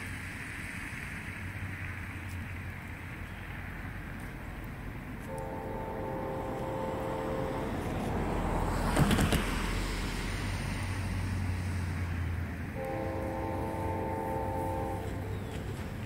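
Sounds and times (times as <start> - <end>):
road vehicle passing: 0.0 - 16.0
distant train air horn: 5.3 - 8.9, 12.7 - 15.4.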